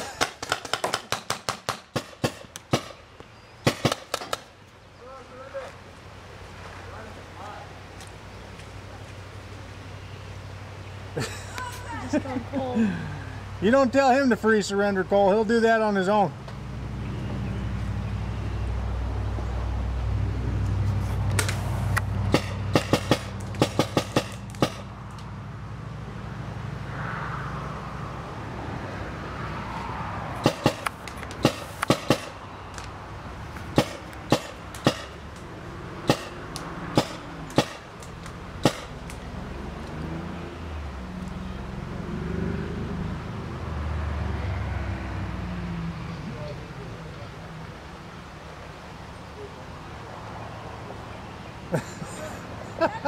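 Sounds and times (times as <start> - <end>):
paintball markers firing: 0.2 - 3.0, 3.6 - 4.5.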